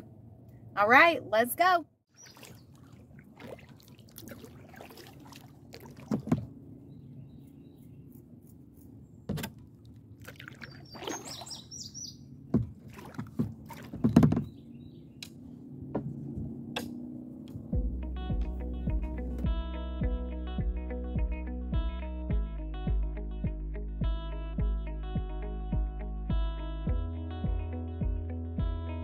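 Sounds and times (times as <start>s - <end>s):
bird calling: 2.1s - 3.0s, 10.5s - 12.3s
paddle strokes and splashes: 2.1s - 6.8s, 9.6s - 16.4s.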